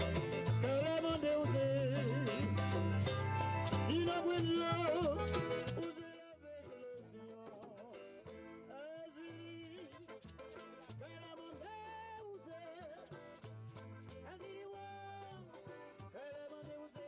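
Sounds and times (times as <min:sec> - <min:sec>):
man singing: 0:00.0 - 0:02.9, 0:03.7 - 0:13.5, 0:14.1 - 0:17.0
steady bass line: 0:00.0 - 0:05.9
instrumental accompaniment: 0:00.0 - 0:16.8.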